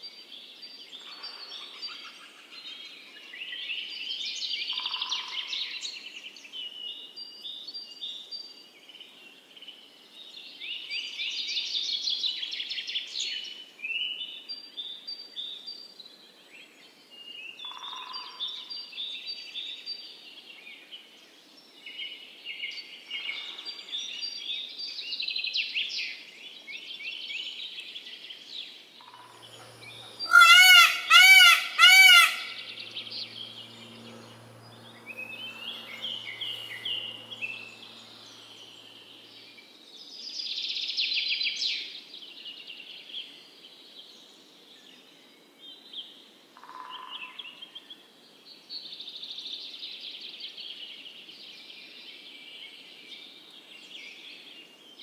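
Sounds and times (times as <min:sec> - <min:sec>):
songbirds singing and chirping: 0:29.2 - 0:40.1
peacock calling loudly: 0:29.4 - 0:38.4.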